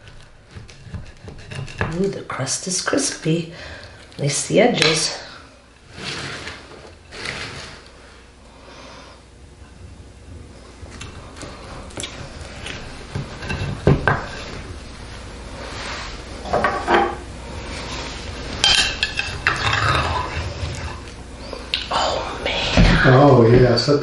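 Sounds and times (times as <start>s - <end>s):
utensils scraping glass dish: 0.6s - 3.0s, 5.9s - 7.9s.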